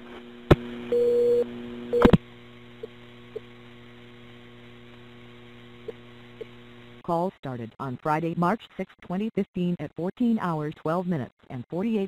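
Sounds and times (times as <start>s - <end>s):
electrical mains hum: 0.0s - 8.2s.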